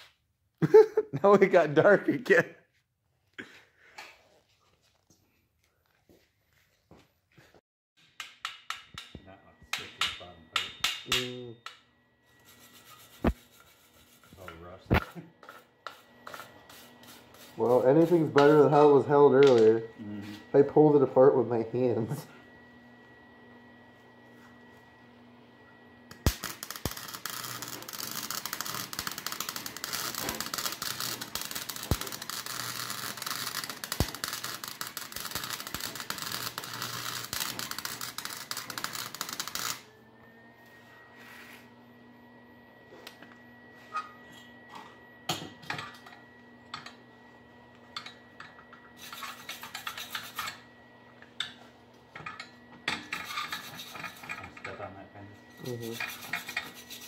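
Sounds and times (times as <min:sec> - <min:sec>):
welding crackle: 0:26.1 - 0:39.8
metal scrapes and knocks: 0:48.0 - 0:50.6, 0:52.2 - 0:54.8, 0:55.6 - 0:57.0.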